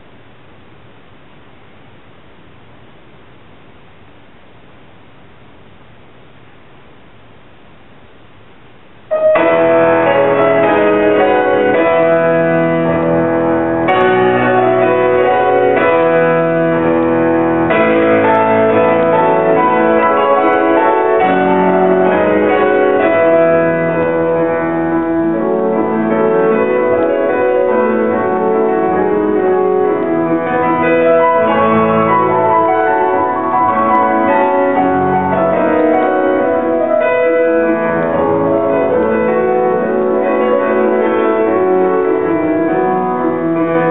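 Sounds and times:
grand piano playing: 9.1 - 43.9.

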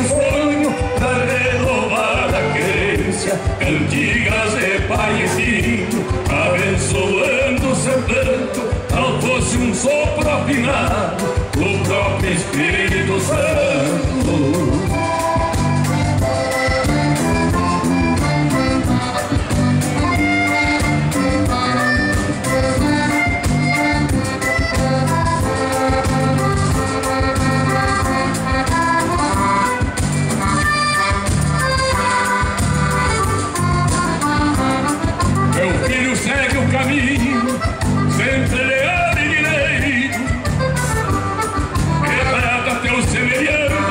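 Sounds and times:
person singing: 0.0 - 15.5, 34.5 - 40.5, 42.0 - 43.9
accordion: 0.0 - 43.9
bass guitar and drums: 0.0 - 43.9.

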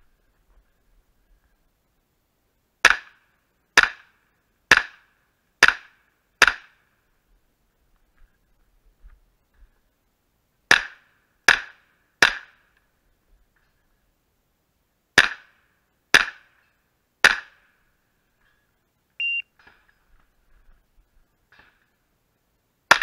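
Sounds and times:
short high beep: 19.2 - 19.5.

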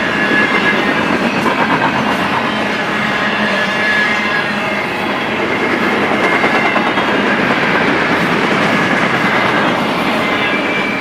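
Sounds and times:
freight train wheels rumbling on rails: 0.0 - 11.0.

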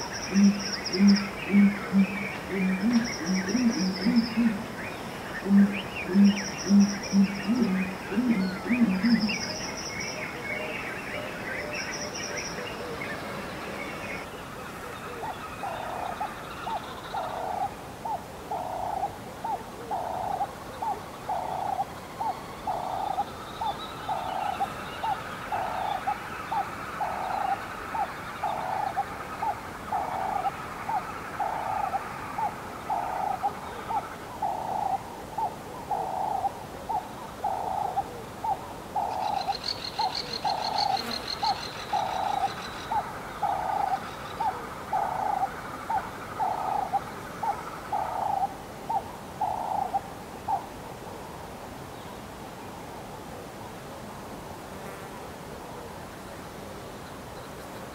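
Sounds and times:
birds chirping: 0.0 - 17.7, 19.9 - 35.0.

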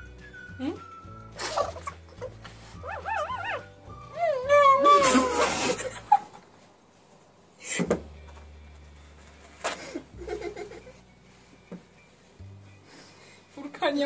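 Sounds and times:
breathy laughter: 1.4 - 2.4, 5.4 - 6.5, 9.7 - 11.0.

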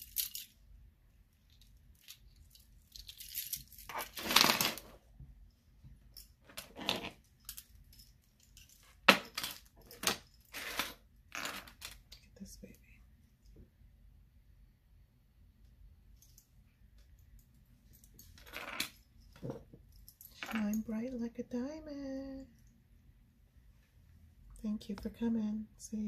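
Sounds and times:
metal charms jangling: 0.0 - 0.6, 1.5 - 4.2.

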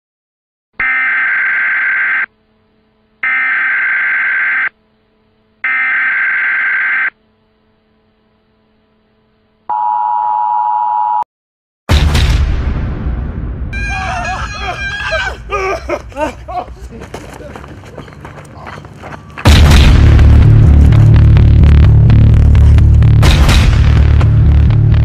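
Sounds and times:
loud boom: 11.9 - 13.8, 19.4 - 25.0.

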